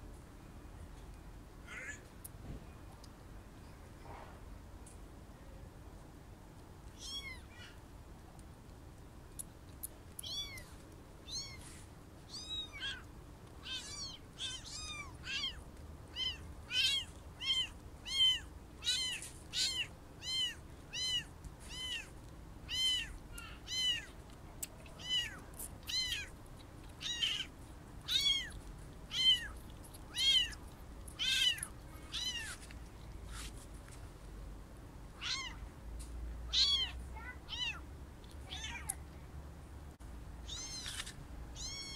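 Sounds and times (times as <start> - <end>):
kittens mewing: 1.7 - 2.1, 12.3 - 22.1, 22.7 - 24.1, 24.7 - 32.6, 36.5 - 37.8, 40.4 - 41.0, 41.6 - 41.9.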